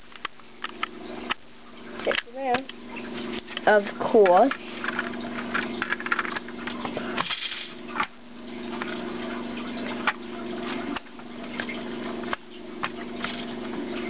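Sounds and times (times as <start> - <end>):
plastic bricks clicking and knocking: 4.2 - 7.7.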